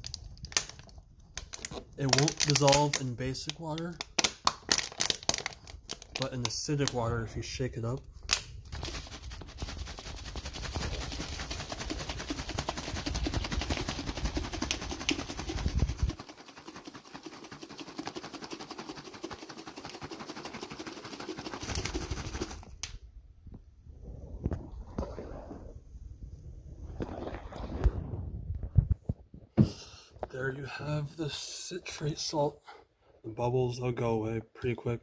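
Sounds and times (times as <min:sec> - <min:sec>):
plastic bottle crackling: 0:00.0 - 0:07.0, 0:08.2 - 0:16.9, 0:19.8 - 0:23.0
water sloshing in plastic bottle: 0:00.0 - 0:07.3, 0:08.7 - 0:22.8, 0:26.8 - 0:29.2.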